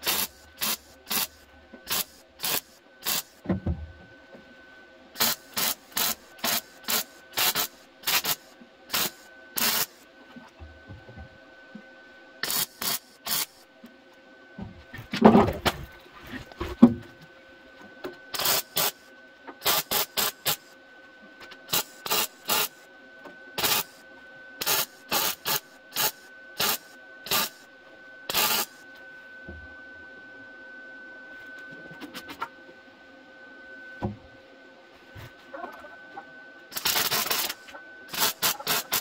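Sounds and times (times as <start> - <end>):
welding sizzle bursts: 0.0 - 3.4, 5.2 - 10.0, 12.4 - 13.6, 18.4 - 20.7, 21.7 - 22.8, 23.6 - 24.0, 24.6 - 27.7, 28.3 - 28.8, 36.7 - 39.0
faint steady whine: 0.0 - 39.0.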